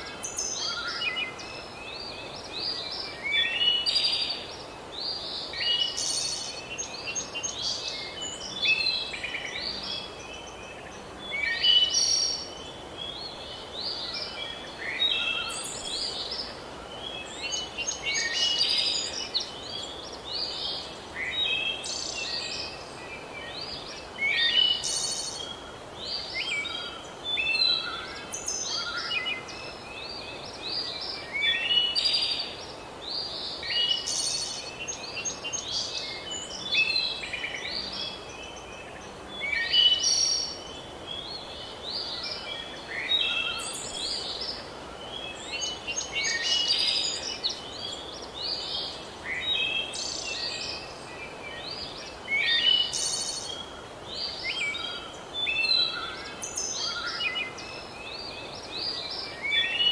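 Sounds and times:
birds singing: 0.0 - 59.9
steady background hiss: 0.0 - 59.9.

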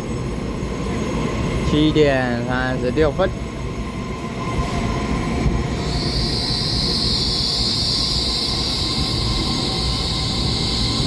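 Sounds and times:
train rumbling past: 0.0 - 11.0
high-pitched squeal: 5.6 - 11.0.

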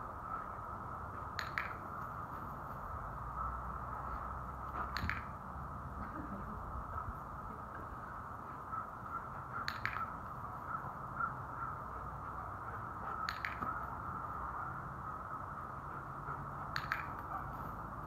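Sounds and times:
steady background noise: 0.0 - 18.0
training clicker clicks: 9.6 - 10.3, 13.2 - 13.9, 16.7 - 17.4.

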